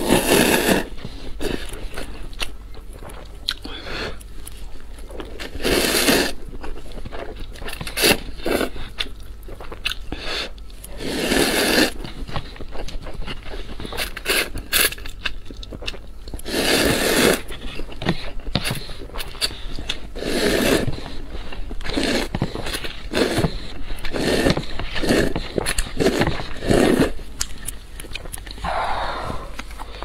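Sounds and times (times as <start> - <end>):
noodle slurping: 0.0 - 1.7, 5.4 - 6.5, 10.9 - 12.1, 16.4 - 17.6, 18.9 - 21.2, 21.8 - 27.2
close-up chewing: 0.0 - 30.0.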